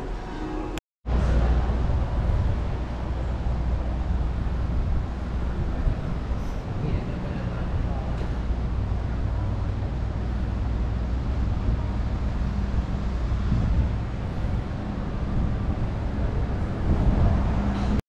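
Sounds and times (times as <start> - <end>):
vehicle engine drone: 0.0 - 18.0.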